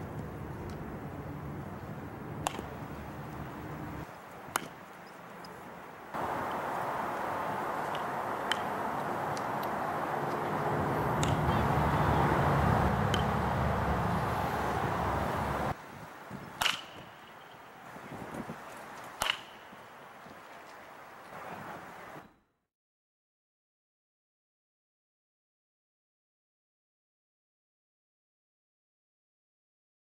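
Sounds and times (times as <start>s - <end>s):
steady rushing background noise: 0.0s - 22.1s
metal bat hitting balls: 2.4s - 3.0s, 4.5s - 4.8s, 7.9s - 11.9s, 12.9s - 13.6s, 16.6s - 17.4s, 19.2s - 19.8s.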